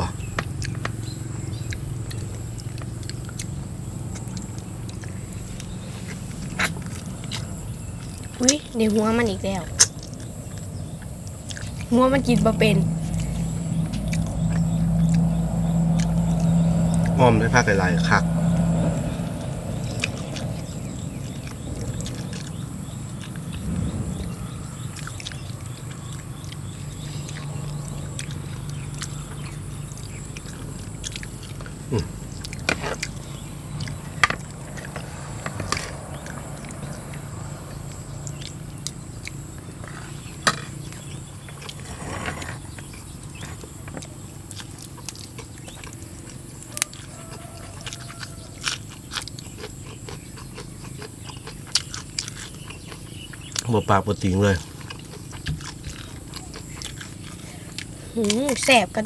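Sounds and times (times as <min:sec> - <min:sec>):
low steady hum: 0:00.0 - 0:59.0
person chewing food: 0:00.2 - 0:08.6, 0:09.6 - 0:11.9, 0:13.0 - 0:17.2, 0:18.4 - 0:58.7
sharp clicks and crunches: 0:37.9 - 0:58.9.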